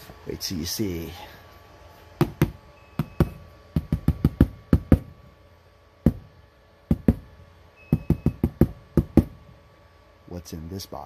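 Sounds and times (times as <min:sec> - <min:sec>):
hand knocking on cardboard box: 0:02.2 - 0:05.1, 0:06.1 - 0:06.3, 0:06.9 - 0:07.2, 0:07.9 - 0:09.4.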